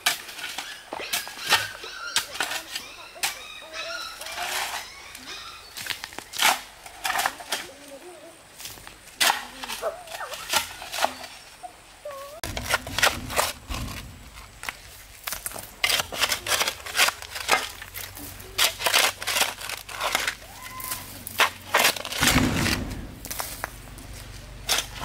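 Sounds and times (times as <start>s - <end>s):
clicks and crackles of material: 12.4s - 25.0s
low thump: 22.2s - 23.3s.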